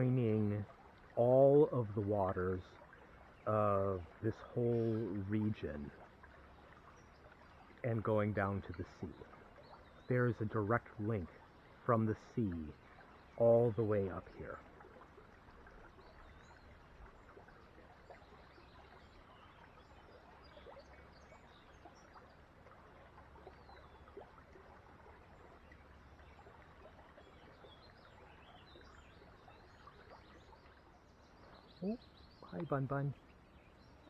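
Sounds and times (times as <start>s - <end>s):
bird chirps: 31.4s - 34.0s.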